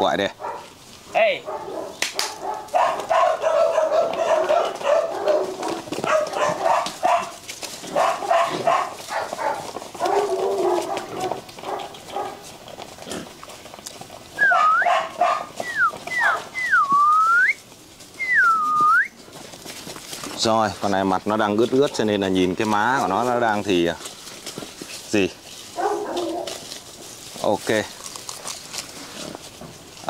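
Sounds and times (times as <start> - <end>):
puppies barking and whining: 1.4 - 30.0
person whistling swooping notes: 15.6 - 17.6, 18.2 - 19.1.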